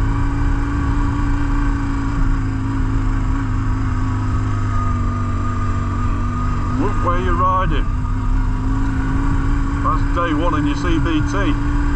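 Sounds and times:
motorcycle engine running: 0.0 - 11.9.

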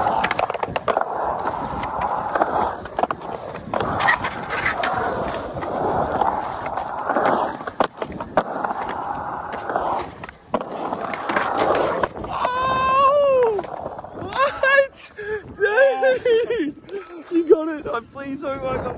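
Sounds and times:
skateboard clacks: 0.0 - 14.5
skateboard wheels rolling on concrete: 0.0 - 18.9
person yelling: 12.3 - 13.6.

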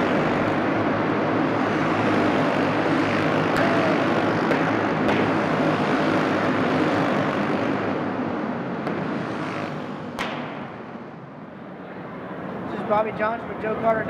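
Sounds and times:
racing kart engines: 0.0 - 14.0.

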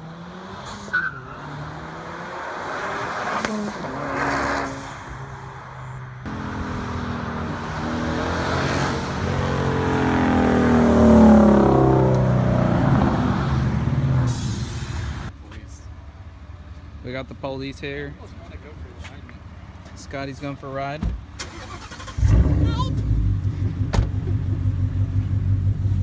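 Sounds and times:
cars accelerating past: 0.0 - 15.3.

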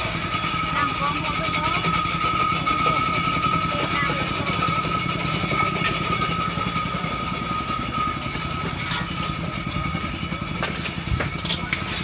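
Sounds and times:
small engine idling: 0.0 - 12.0.

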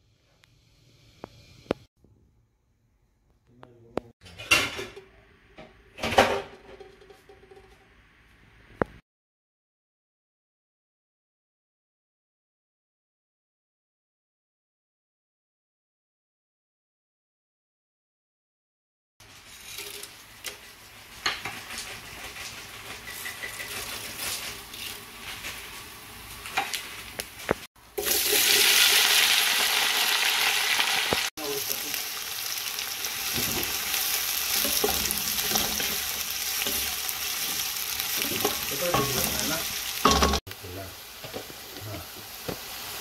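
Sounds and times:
oil crackling in pot: 19.2 - 43.0
onions sizzling in oil: 19.2 - 43.0
spatula scraping and knocking pot: 19.6 - 25.6, 34.5 - 40.4.

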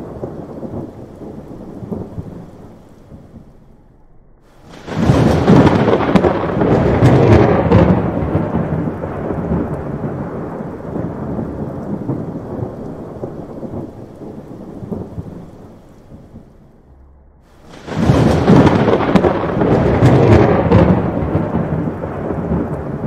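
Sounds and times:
thunder crack and rumble: 0.0 - 23.0.

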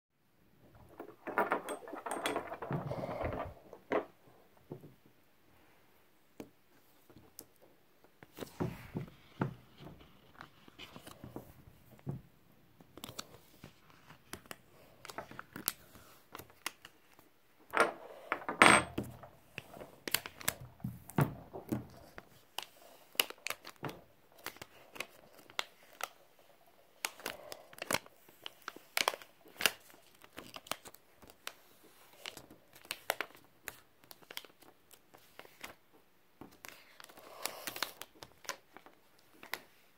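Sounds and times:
vinyl sheet crinkling and crackling: 22.0 - 39.9.

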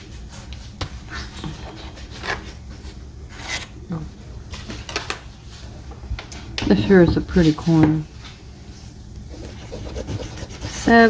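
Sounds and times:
paper ticket rubbing on tabletop: 9.3 - 11.0.

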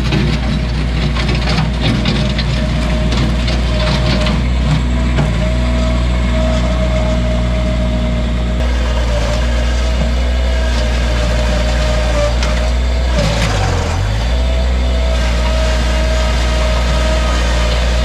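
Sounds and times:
loader engine running with whine: 0.0 - 18.0
bucket scraping soil: 8.6 - 18.0.

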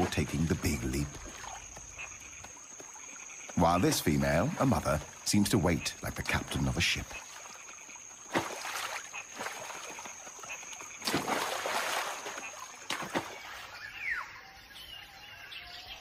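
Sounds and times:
monkeys splashing into water: 7.1 - 13.9
faint bird calls: 11.9 - 16.0.

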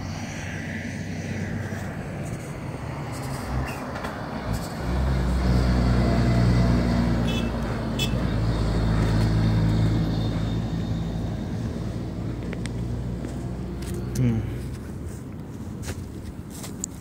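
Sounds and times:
vehicle engine running: 0.0 - 16.6.

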